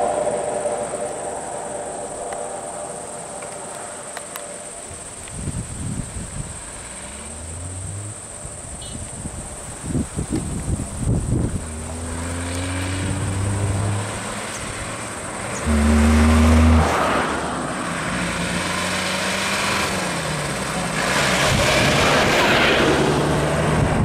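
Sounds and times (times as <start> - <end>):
low rumbling buffets: 0.0 - 18.7, 19.8 - 24.0
insects buzzing: 0.4 - 21.9
low engine hum: 10.0 - 24.0.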